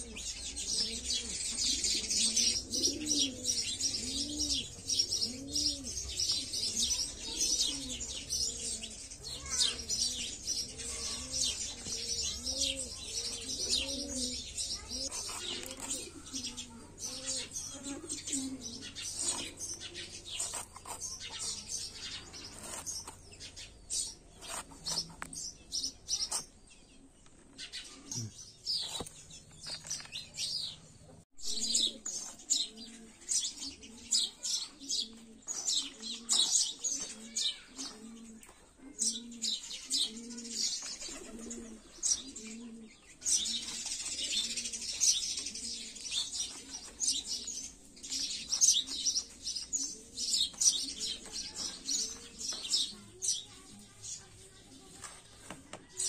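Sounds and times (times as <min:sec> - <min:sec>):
dove cooing: 0:00.0 - 0:21.0, 0:31.4 - 0:53.0
small birds chirping: 0:00.0 - 0:56.0.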